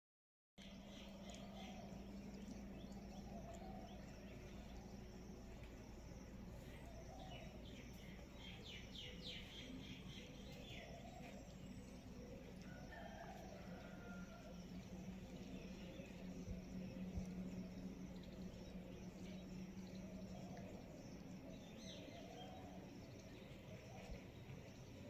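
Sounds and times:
birds chirping: 0:00.6 - 0:14.2
steady low hum: 0:00.6 - 0:25.0.

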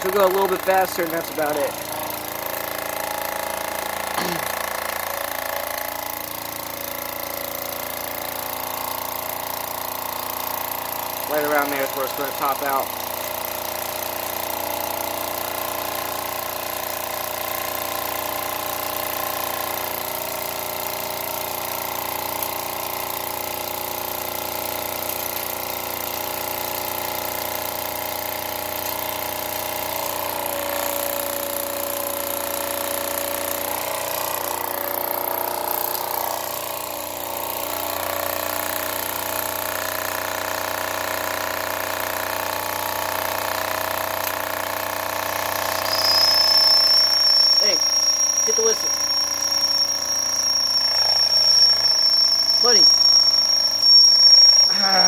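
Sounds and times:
toy steam engine running: 0:00.0 - 0:55.0.

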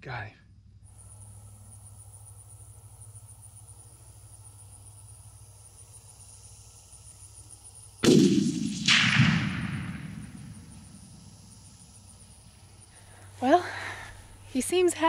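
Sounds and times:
second sharp crack: 0:08.0 - 0:11.2
rifle shot crack: 0:08.0 - 0:11.7
rumbling echo: 0:08.0 - 0:11.8.

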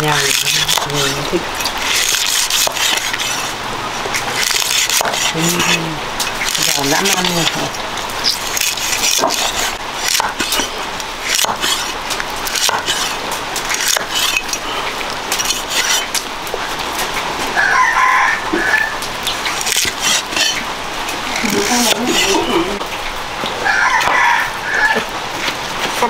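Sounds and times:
rooster crowing: 0:17.5 - 0:19.0, 0:23.6 - 0:25.2.

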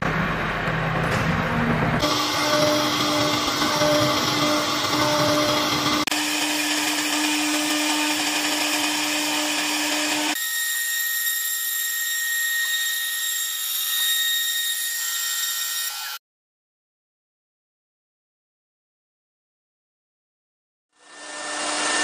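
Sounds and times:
cnc router spindle whine: 0:01.9 - 0:16.2, 0:21.0 - 0:22.0.

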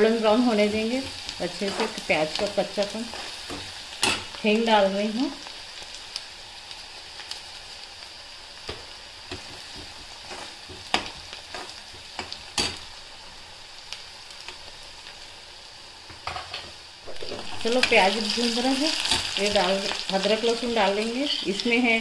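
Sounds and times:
onions sizzling in hot oil: 0:00.0 - 0:22.0
metal spoon scraping a pan: 0:01.1 - 0:02.1.

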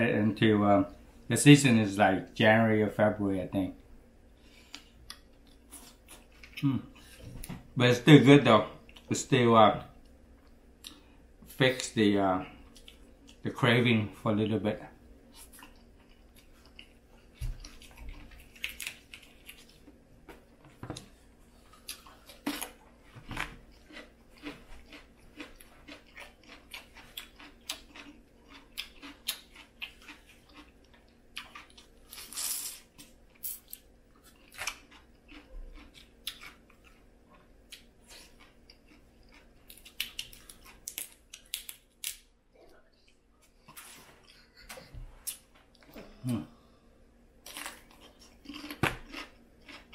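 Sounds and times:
chewing: 0:15.3 - 0:20.0, 0:23.5 - 0:41.7, 0:47.4 - 0:49.9.

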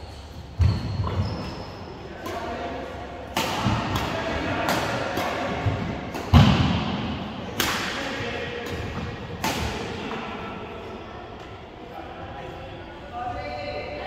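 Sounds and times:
badminton racket hitting shuttlecock: 0:03.3 - 0:06.6.

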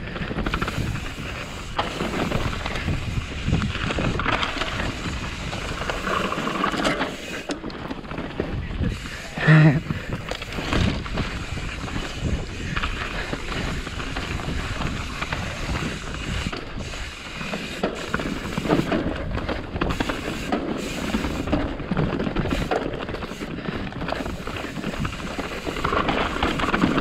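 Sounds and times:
wind on microphone: 0:00.0 - 0:06.0, 0:09.8 - 0:17.1
bike rattling: 0:00.0 - 0:27.0.

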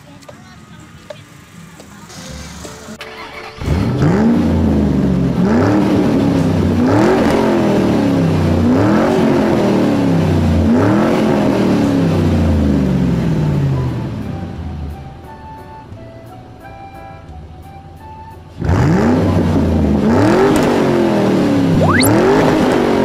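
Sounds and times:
electronic engine revving effect: 0:21.7 - 0:22.3.

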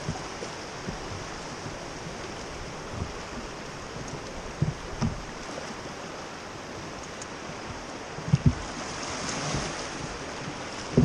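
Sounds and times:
short low thumps: 0:00.0 - 0:05.4
river water rushing: 0:00.0 - 0:11.0.

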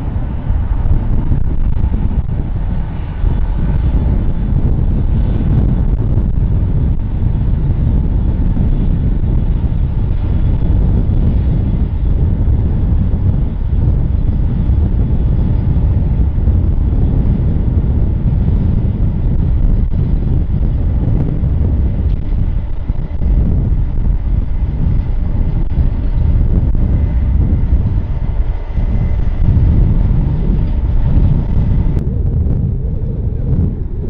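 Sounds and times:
jet engines at takeoff thrust: 0:00.0 - 0:34.0.

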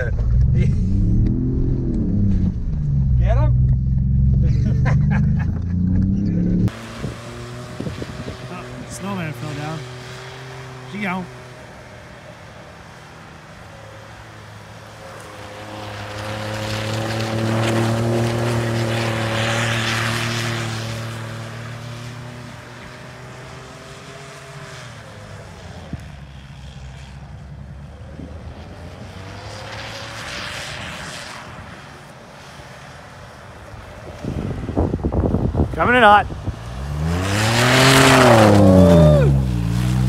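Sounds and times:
truck engine revving: 0:00.0 - 0:11.2, 0:36.6 - 0:40.0.

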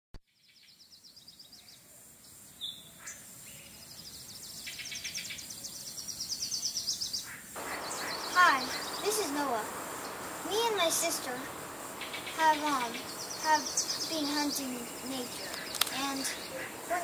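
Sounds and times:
steady high hiss: 0:01.7 - 0:17.0
high-pitched chirping trill: 0:07.6 - 0:17.0.

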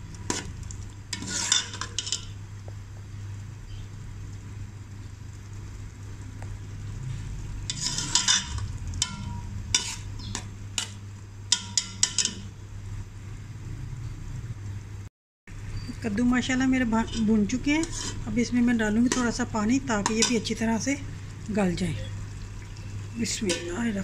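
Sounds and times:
light sizzling: 0:00.0 - 0:14.9, 0:15.5 - 0:24.0
spoon scraping metal pot: 0:01.1 - 0:02.4, 0:07.7 - 0:12.4, 0:17.0 - 0:20.5, 0:23.2 - 0:24.0.

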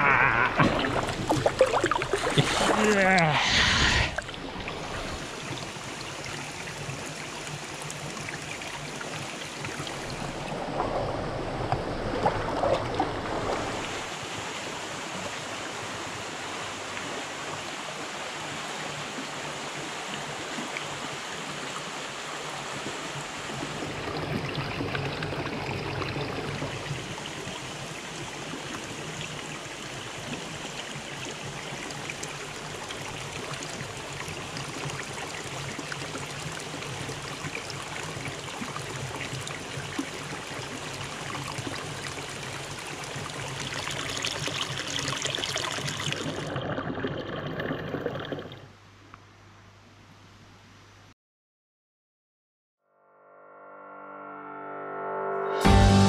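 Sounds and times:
water pouring into a pool: 0:00.2 - 0:15.5, 0:23.3 - 0:48.7.

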